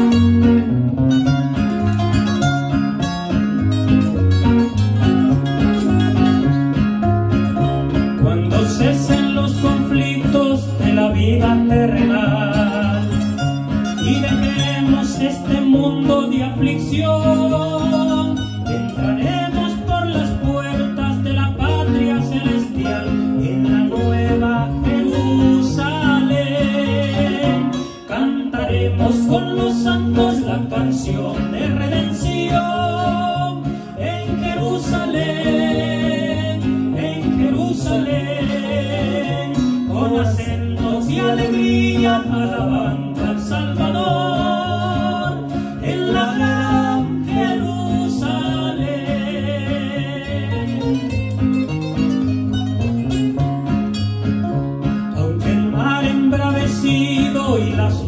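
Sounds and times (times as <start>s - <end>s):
acoustic guitars playing: 0.0s - 58.0s
men singing: 8.1s - 51.2s, 55.0s - 58.0s.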